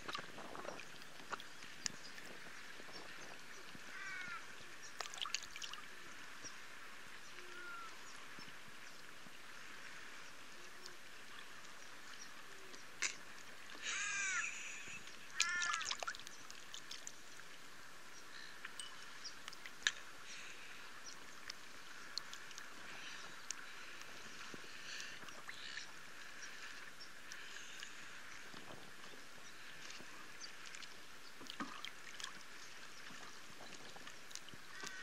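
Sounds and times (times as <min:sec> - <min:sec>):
lake water lapping: 0:00.0 - 0:35.0.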